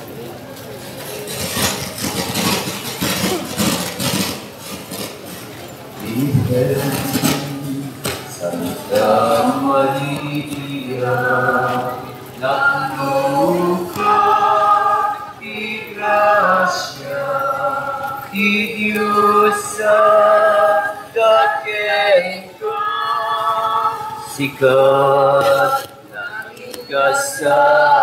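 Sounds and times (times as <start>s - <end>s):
group singing in unison: 6.0s - 28.0s.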